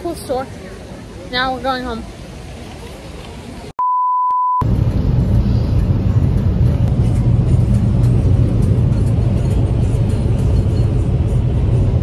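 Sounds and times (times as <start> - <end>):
car cabin road rumble: 4.6 - 12.0.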